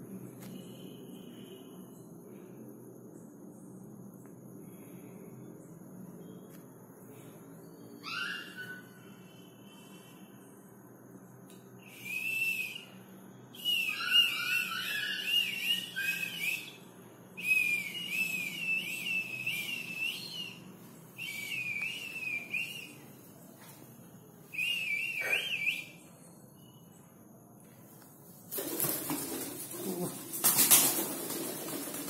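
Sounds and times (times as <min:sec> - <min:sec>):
high wavering whistling: 0:11.8 - 0:13.0, 0:13.6 - 0:23.1, 0:24.5 - 0:26.7.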